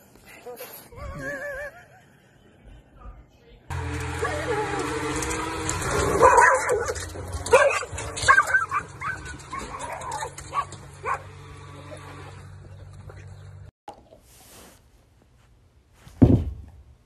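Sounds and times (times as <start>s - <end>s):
dogs yelping and barking: 4.2s - 12.4s.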